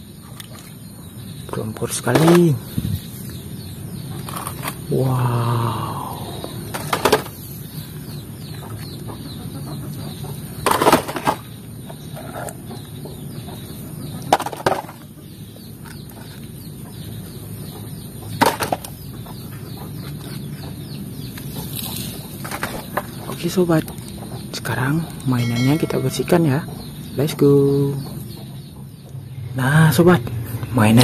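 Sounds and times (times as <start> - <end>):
toy vehicles clattering in tub: 6.7 - 7.4, 10.6 - 11.5.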